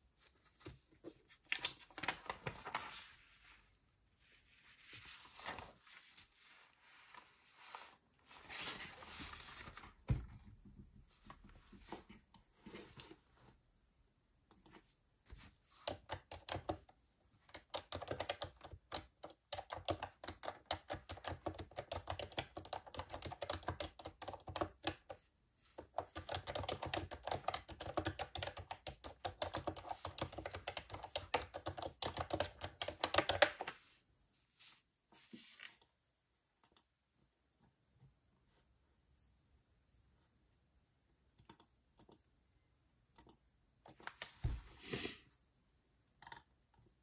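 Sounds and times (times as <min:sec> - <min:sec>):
keyboard typing: 0:15.8 - 0:16.9, 0:17.5 - 0:25.2, 0:25.8 - 0:33.7.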